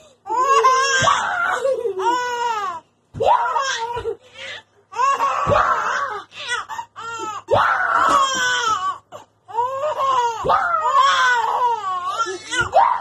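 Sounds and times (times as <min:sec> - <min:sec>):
toddler crying and squealing: 0:03.3 - 0:13.0.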